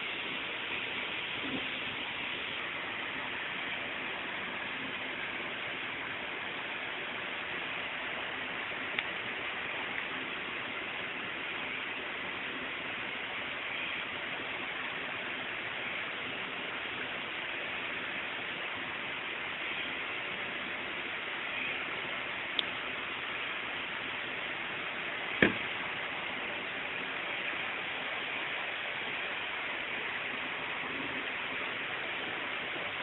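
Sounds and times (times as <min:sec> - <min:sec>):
recording hiss: 0:00.0 - 0:33.0.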